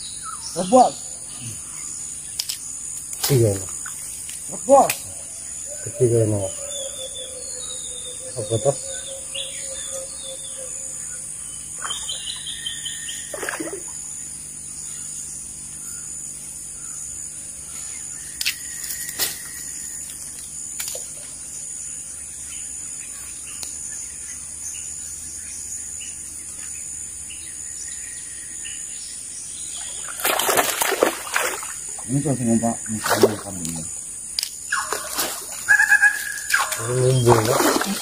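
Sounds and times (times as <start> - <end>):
high insect buzz: 0.0 - 38.0
wild birds calling: 0.0 - 38.0
sharp clicks: 2.4 - 3.3.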